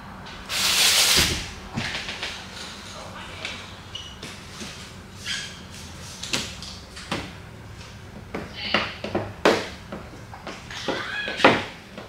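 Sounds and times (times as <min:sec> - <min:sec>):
squeegee squeak: 0:05.2 - 0:05.7.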